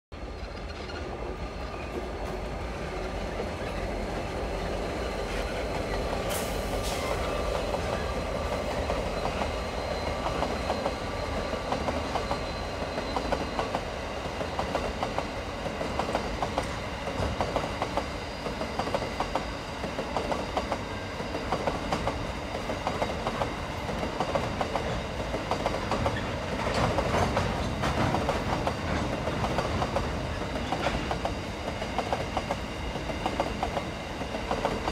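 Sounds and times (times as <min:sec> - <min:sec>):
diesel locomotive rumble: 0:00.2 - 0:14.5.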